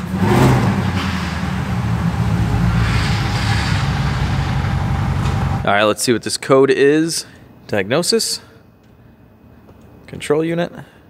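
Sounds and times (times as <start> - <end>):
misfiring engine running: 0.0 - 5.7.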